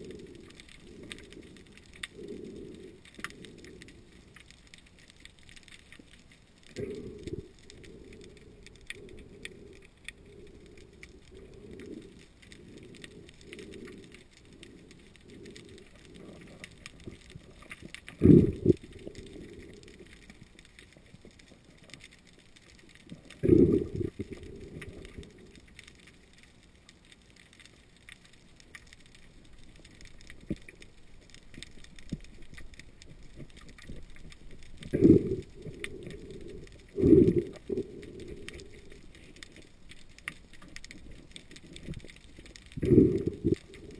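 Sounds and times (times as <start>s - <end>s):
fine crackle of clicks: 0.0s - 43.9s
low underwater rumble: 6.5s - 21.8s, 23.2s - 25.7s, 29.4s - 43.9s.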